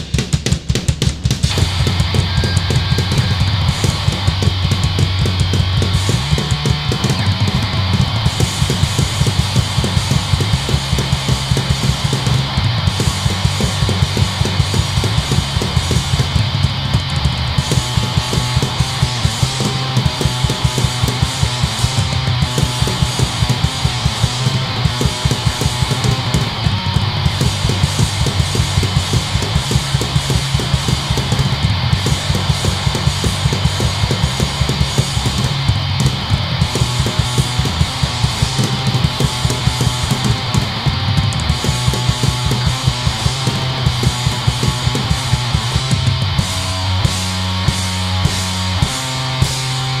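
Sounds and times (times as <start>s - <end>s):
bass guitar: 0.0s - 50.0s
distorted electric guitar: 0.0s - 50.0s
fast drumbeat: 0.0s - 50.0s.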